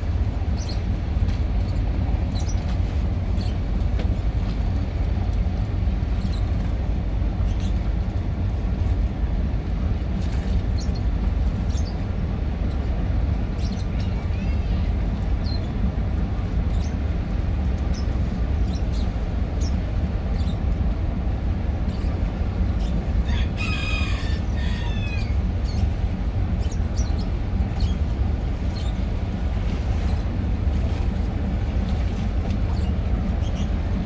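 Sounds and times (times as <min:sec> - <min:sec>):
steady low rumble: 0:00.0 - 0:34.0
rooster crowing: 0:23.3 - 0:25.3.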